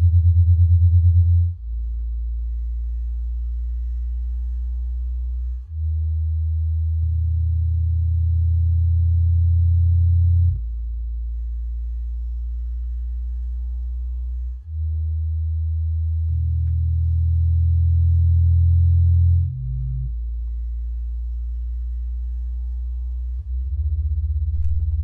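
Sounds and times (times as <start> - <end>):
faint high whine: 6.7 - 25.0.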